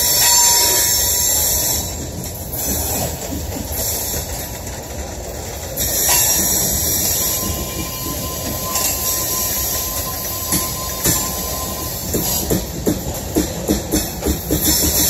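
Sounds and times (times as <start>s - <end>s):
train wheels grinding and squealing: 0.0s - 15.0s.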